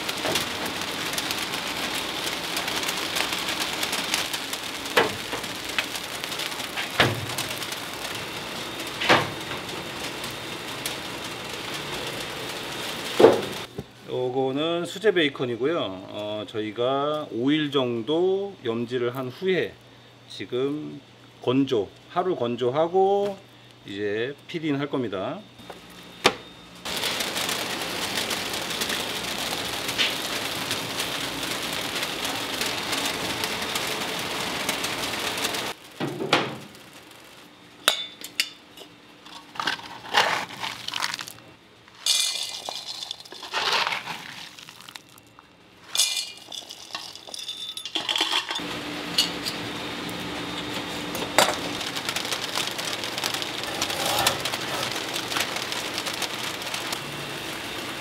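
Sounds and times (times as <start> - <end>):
faint hum: 13.7 - 27.6
pans and utensils clinking: 42.0 - 44.2, 45.9 - 48.6.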